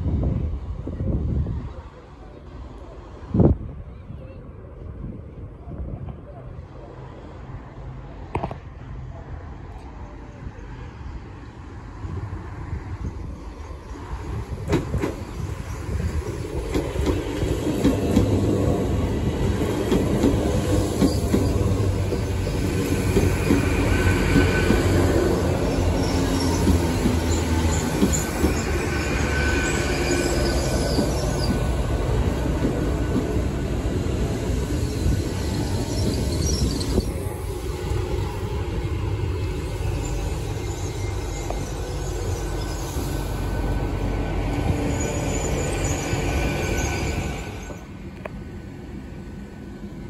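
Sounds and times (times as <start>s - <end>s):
diesel train passing: 0.0s - 50.0s
high squeal from running gear: 23.2s - 31.8s, 34.7s - 37.3s, 39.8s - 43.7s, 44.6s - 47.9s.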